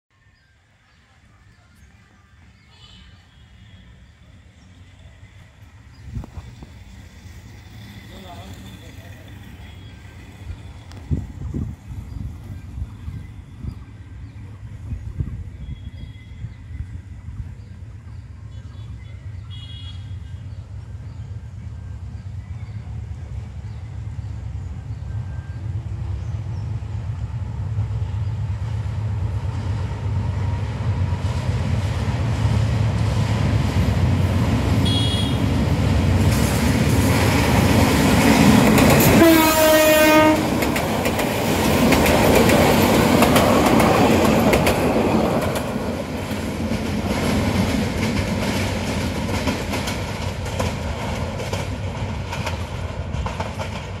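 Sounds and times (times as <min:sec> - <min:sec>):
diesel locomotive engine rumble: 0:00.5 - 0:54.0
train horn blast: 0:19.5 - 0:20.4, 0:34.8 - 0:35.6, 0:39.0 - 0:40.6
coaches clattering over rail joints: 0:40.4 - 0:54.0.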